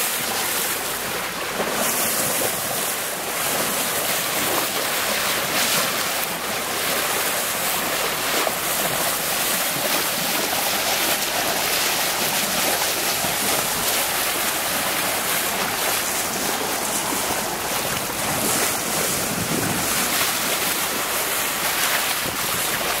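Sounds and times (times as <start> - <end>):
water splashing along hull: 0.0 - 23.0
wind buffeting microphone: 12.4 - 23.0.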